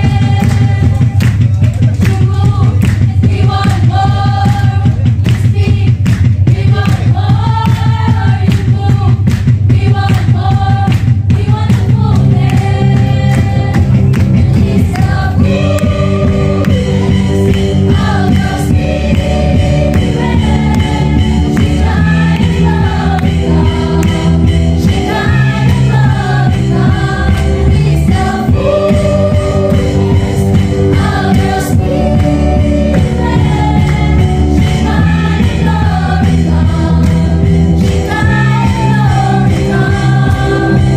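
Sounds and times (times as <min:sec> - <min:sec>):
group of singers singing: 0:00.0 - 0:01.2, 0:02.1 - 0:40.9
steady drum beat: 0:00.0 - 0:40.9
gospel band playing: 0:09.9 - 0:40.9.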